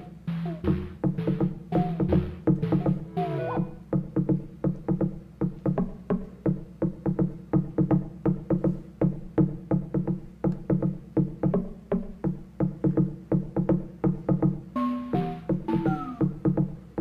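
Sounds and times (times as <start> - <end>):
instrumental music with low struck notes: 0.0 - 17.0
high sliding tone: 14.8 - 16.3.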